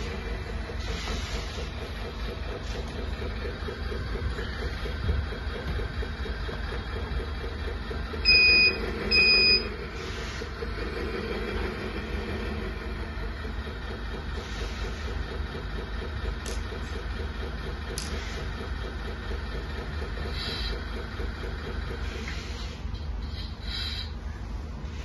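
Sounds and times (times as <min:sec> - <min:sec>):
simulated truck engine idling: 0:00.0 - 0:25.0
loud electronic beeps: 0:08.3 - 0:09.8.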